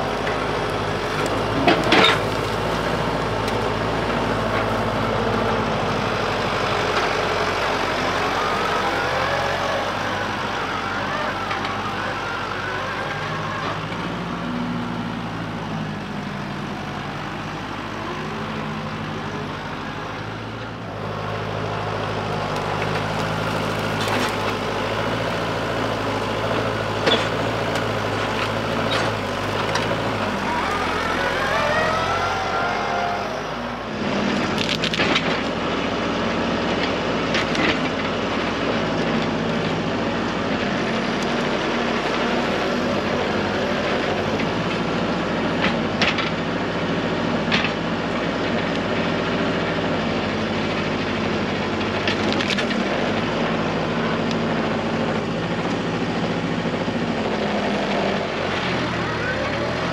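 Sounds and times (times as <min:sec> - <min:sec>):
tractor diesel engine running: 0:00.0 - 0:59.9
brush cracking and snapping: 0:22.5 - 0:24.8, 0:34.3 - 0:35.5
rising and falling whine: 0:29.5 - 0:34.0.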